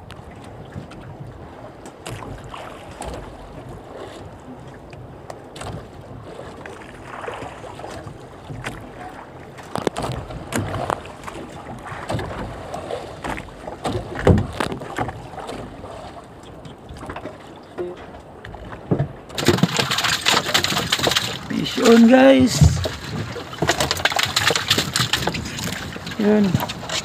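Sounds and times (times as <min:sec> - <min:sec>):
knocks and thumps on boat: 0:00.0 - 0:27.0
water wash: 0:18.7 - 0:27.0
wind noise: 0:19.4 - 0:27.0.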